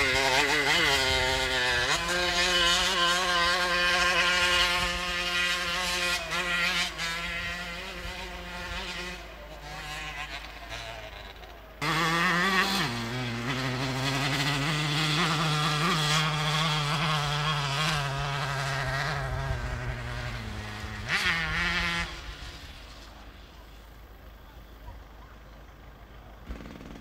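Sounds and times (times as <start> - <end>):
moped engine climbing hill: 0.0 - 27.0.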